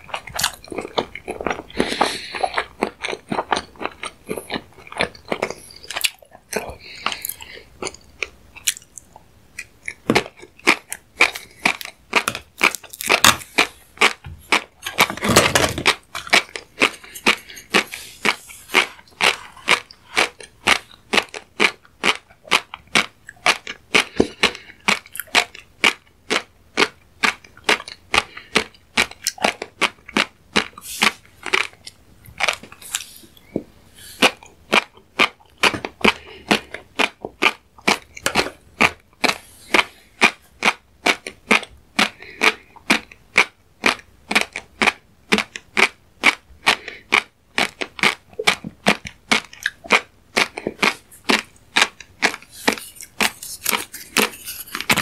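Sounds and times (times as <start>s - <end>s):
chewing fish roe: 0.0s - 55.0s.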